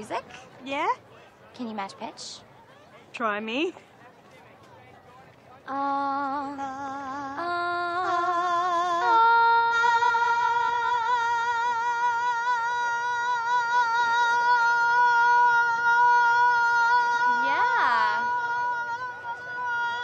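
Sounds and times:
woman singing with vibrato: 5.7s - 20.0s.

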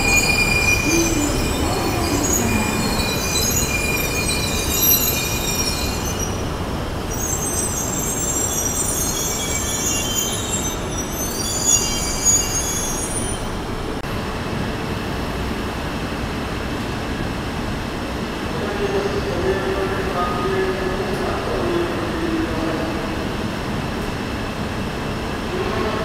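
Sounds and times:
train wheel and brake squeals: 0.0s - 13.6s
train rumble: 0.0s - 26.0s.

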